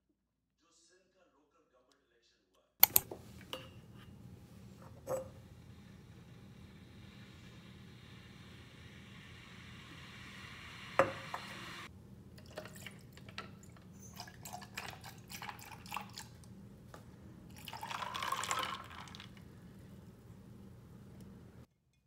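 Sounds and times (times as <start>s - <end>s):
sharp click: 2.8s - 3.1s.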